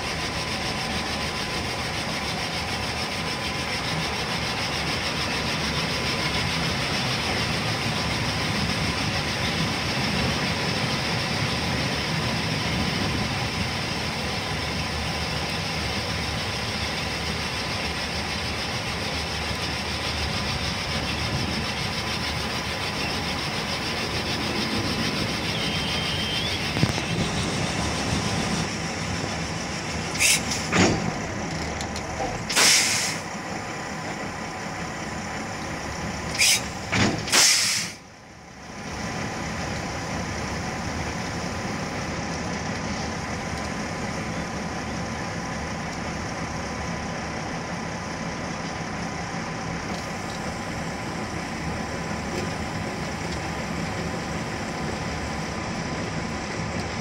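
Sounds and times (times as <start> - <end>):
wheels rolling on rails: 0.0 - 32.6
rail vehicle engine running: 0.0 - 57.0.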